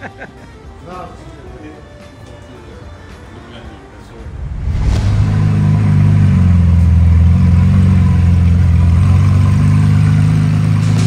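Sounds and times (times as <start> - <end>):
car engine idling: 5.3 - 11.0.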